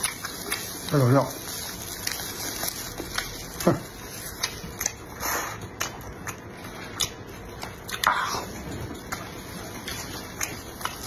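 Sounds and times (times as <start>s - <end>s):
chewing food close up: 0.0s - 11.0s.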